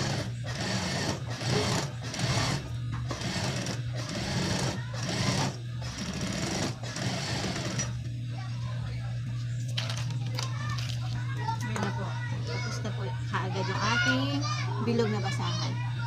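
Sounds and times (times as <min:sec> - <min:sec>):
sewing machine stitching: 0:00.0 - 0:08.0
steady low hum: 0:00.0 - 0:16.0.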